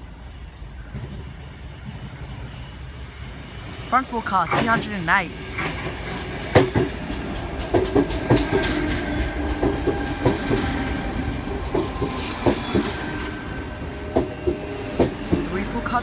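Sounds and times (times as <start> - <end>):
train wheels clacking: 5.6 - 16.0.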